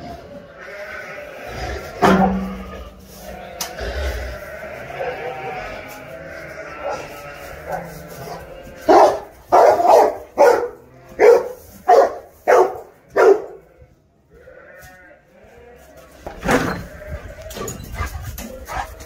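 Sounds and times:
dog barking: 7.7s - 13.6s.

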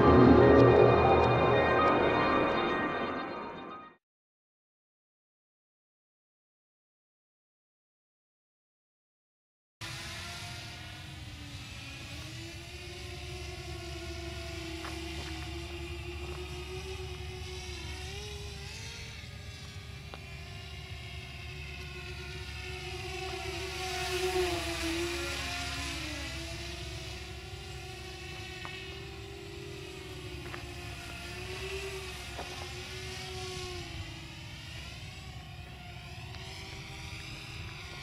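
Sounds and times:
quadcopter motors whining: 9.8s - 38.0s.

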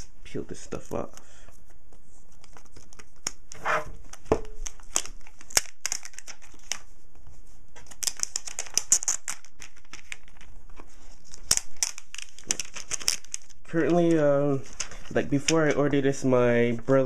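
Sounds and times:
plastic film peeling and crinkling: 2.1s - 6.9s, 7.8s - 16.2s.

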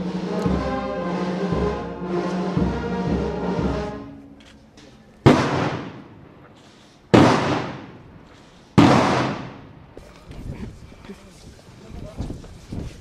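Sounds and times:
loud gunshot blasts echoing: 5.2s - 6.2s, 7.1s - 8.0s, 8.8s - 9.7s.

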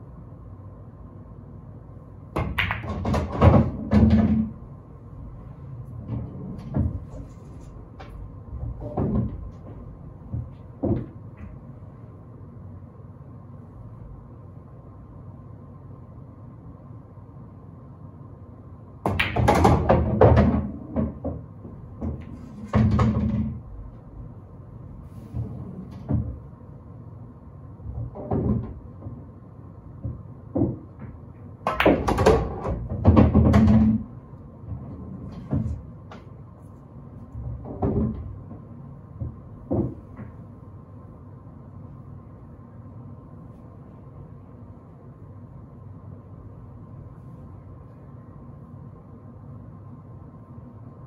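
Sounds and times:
pool balls clicking: 2.3s - 4.6s, 19.1s - 23.6s, 27.8s - 29.4s, 30.0s - 36.3s, 37.2s - 40.5s
balls rolling in pool table: 2.4s - 11.7s, 19.1s - 24.1s, 25.0s - 26.7s, 27.8s - 40.6s.

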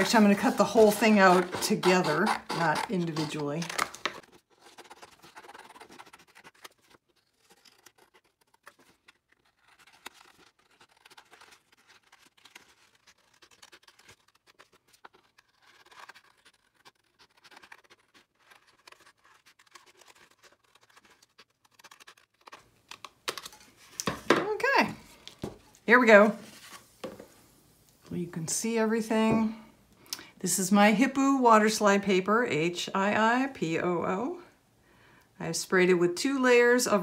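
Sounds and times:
scissors snipping paper: 0.0s - 23.6s
paper rustling: 0.0s - 24.4s, 25.0s - 27.2s.

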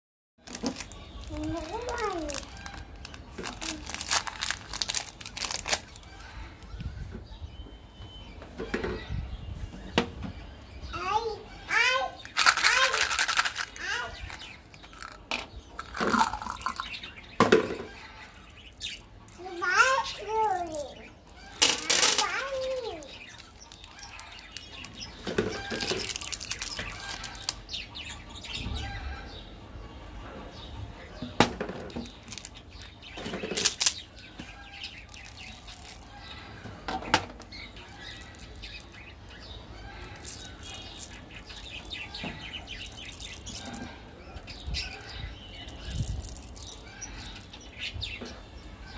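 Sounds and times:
plastic wrapper crinkling: 0.4s - 6.2s, 12.3s - 15.2s, 15.8s - 16.9s, 25.6s - 27.6s, 33.6s - 34.0s.

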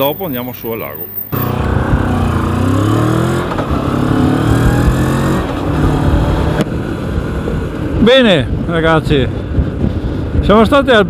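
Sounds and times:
motorcycle engine accelerating: 1.3s - 10.4s
wind rush on microphone: 3.7s - 11.0s.

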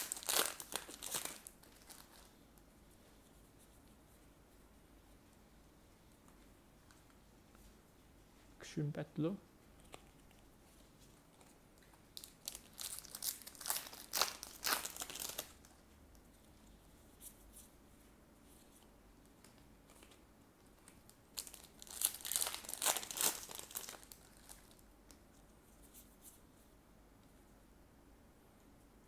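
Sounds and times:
plastic wrapper crinkling and tearing: 0.0s - 2.4s, 11.3s - 15.8s, 20.8s - 24.8s.

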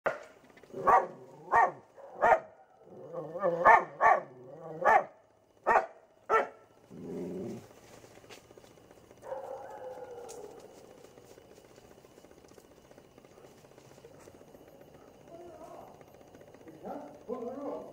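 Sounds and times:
dog barking: 0.1s - 2.7s, 3.4s - 6.6s, 9.2s - 10.7s
dog growling: 0.7s - 2.2s, 2.8s - 5.1s, 6.8s - 7.8s.

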